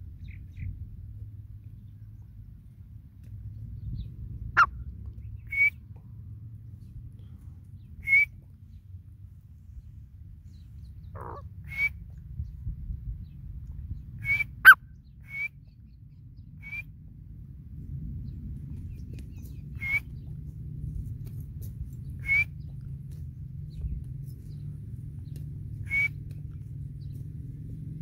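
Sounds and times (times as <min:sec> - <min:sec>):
bird chirping calls: 0:10.5 - 0:16.9, 0:18.2 - 0:20.5, 0:23.6 - 0:27.4.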